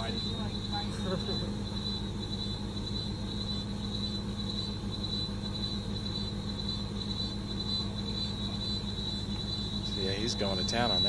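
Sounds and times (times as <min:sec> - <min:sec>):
chorus of forest insects: 0:00.0 - 0:11.0
truck engine idling: 0:00.0 - 0:11.0.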